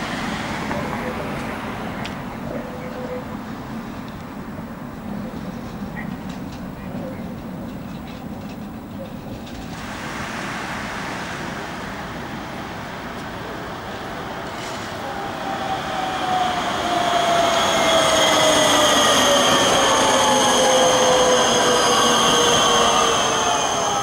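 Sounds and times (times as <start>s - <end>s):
tram wheels rumbling on rails: 0.0s - 24.0s
high steady squeal: 14.6s - 24.0s.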